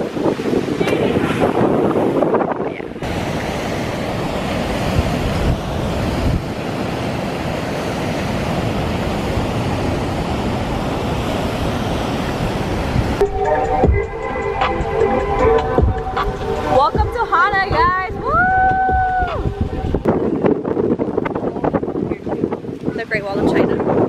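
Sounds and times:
wind buffeting the microphone: 0:00.0 - 0:13.2, 0:14.6 - 0:24.0
ocean surf breaking over rocks: 0:00.0 - 0:24.0
music: 0:13.2 - 0:20.1.

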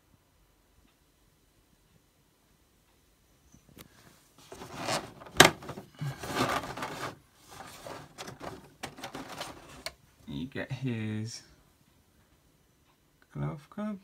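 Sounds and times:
plastic packaging rustling: 0:04.4 - 0:10.0.

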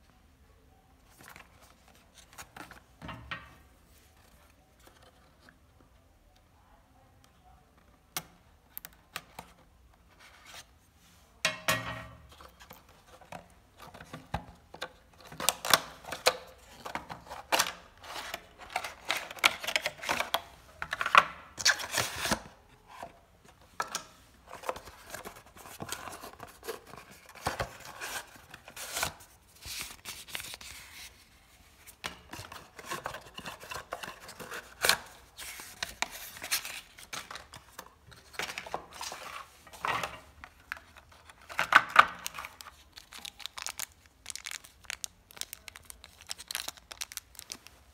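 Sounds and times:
packaging rustling and crinkling: 0:24.4 - 0:47.9.

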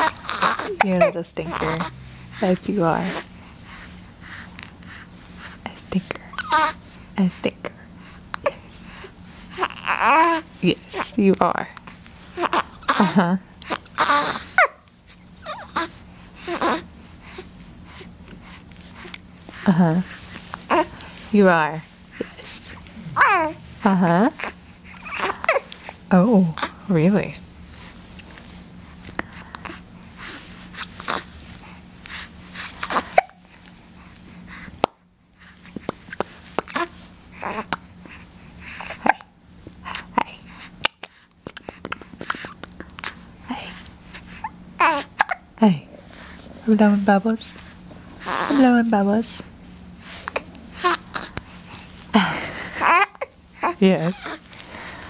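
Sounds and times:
infant cooing and squealing: 0:00.0 - 0:00.9, 0:06.3 - 0:06.8, 0:09.6 - 0:10.4, 0:13.8 - 0:14.8, 0:15.4 - 0:16.8, 0:23.2 - 0:23.6, 0:24.4 - 0:25.7, 0:44.3 - 0:45.4, 0:48.2 - 0:48.6
baby breathy sounds: 0:24.4 - 0:26.9, 0:50.0 - 0:55.0.

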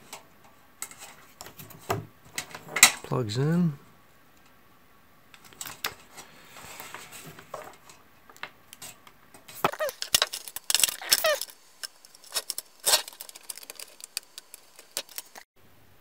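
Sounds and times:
cables and plugs clicking: 0:07.6 - 0:15.5
short squeaks: 0:10.8 - 0:11.6.

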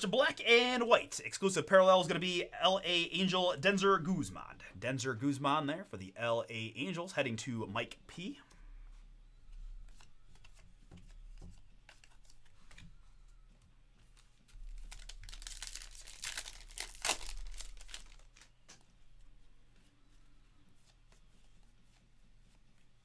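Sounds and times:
foil pack crinkling and tearing: 0:14.6 - 0:18.6.

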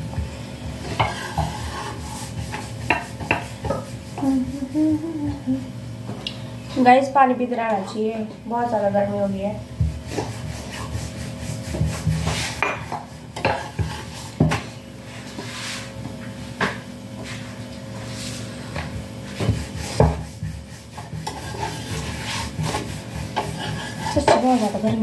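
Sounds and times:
utensils scraping: 0:20.7 - 0:25.0.

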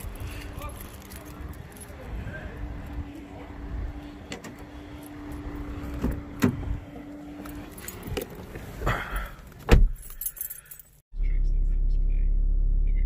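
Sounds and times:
keys jangling: 0:00.0 - 0:02.1, 0:09.9 - 0:11.0
car door shutting with thump: 0:09.6 - 0:10.0.

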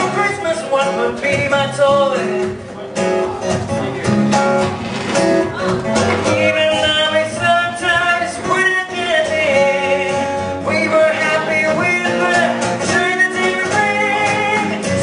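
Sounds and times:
strummed guitar: 0:00.0 - 0:15.0
person singing: 0:05.5 - 0:15.0.

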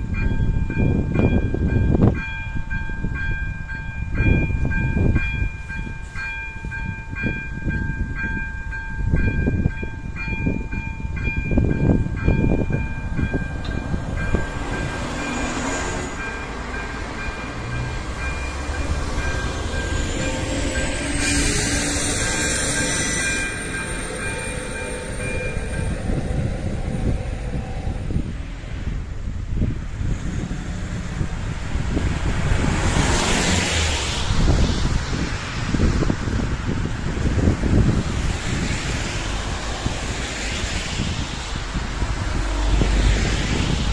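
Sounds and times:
level crossing warning bell: 0:00.0 - 0:28.2
diesel railcar rumbling: 0:00.0 - 0:43.9
wind buffeting microphone: 0:00.0 - 0:43.9
high wheel squeal: 0:14.2 - 0:28.2
tyres hissing on wet road: 0:31.6 - 0:43.9.

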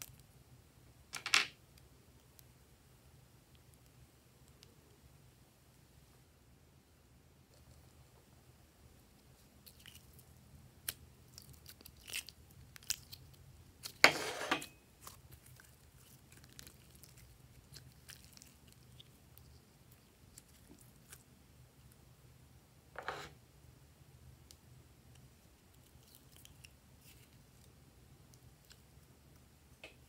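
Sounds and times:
slime squelch: 0:09.2 - 0:14.0, 0:15.0 - 0:21.3
slime clicking and crackling: 0:09.6 - 0:14.0, 0:15.0 - 0:21.3.

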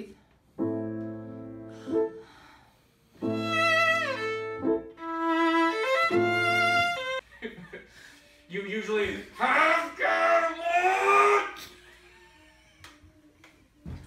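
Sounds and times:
piano: 0:00.5 - 0:02.5, 0:03.1 - 0:07.2
bowed violin: 0:03.2 - 0:07.2.

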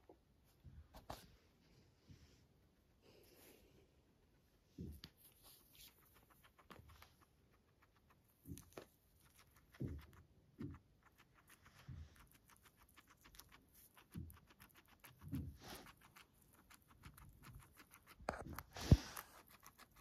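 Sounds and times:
guinea pig chewing greens: 0:04.9 - 0:20.0.

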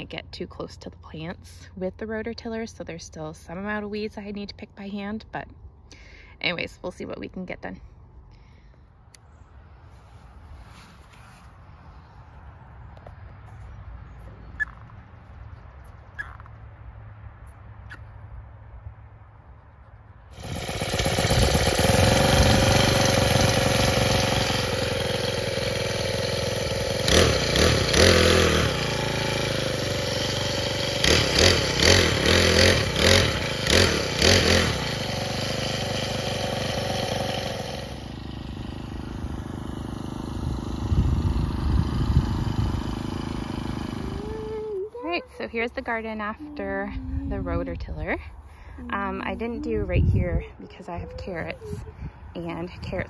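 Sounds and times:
rototiller engine surging: 0:20.2 - 0:53.0.

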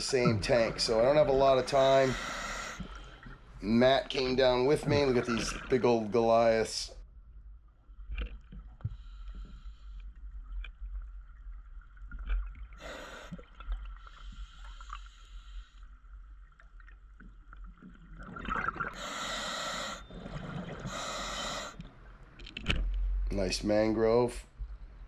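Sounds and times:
regulator inhalation hiss: 0:01.7 - 0:02.9, 0:12.8 - 0:13.4, 0:19.0 - 0:20.0, 0:20.9 - 0:21.8
exhaled bubbles gushing: 0:03.0 - 0:06.6, 0:18.0 - 0:19.0.

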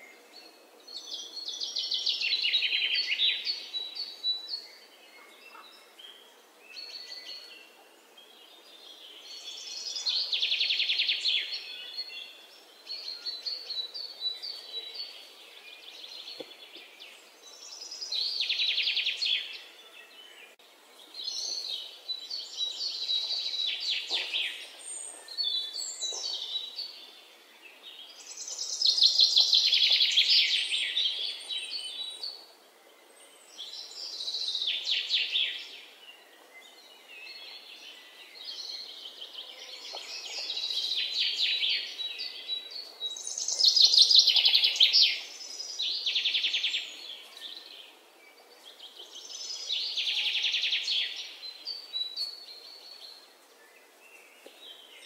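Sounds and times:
songbirds trilling: 0:00.0 - 0:55.0.

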